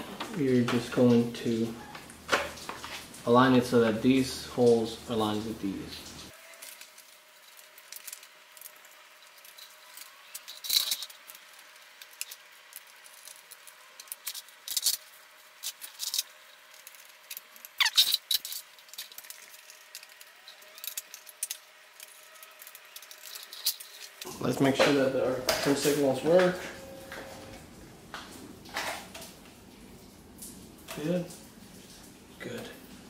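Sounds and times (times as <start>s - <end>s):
plastic parts clicking: 15.6s - 24.3s.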